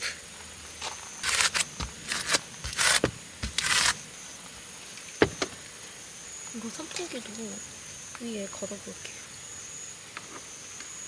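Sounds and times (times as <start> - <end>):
packing tape ripping off roll: 1.2 - 4.0.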